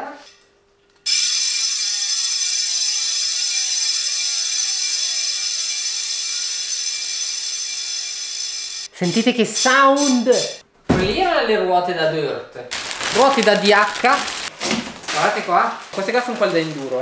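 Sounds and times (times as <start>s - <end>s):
bicycle freehub ratcheting buzz: 1.0s - 10.6s.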